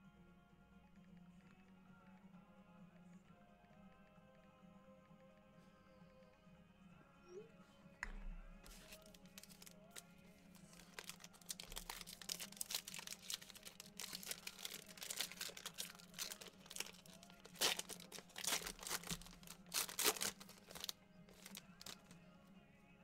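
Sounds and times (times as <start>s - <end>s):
foil pack crinkling: 8.6s - 22.1s.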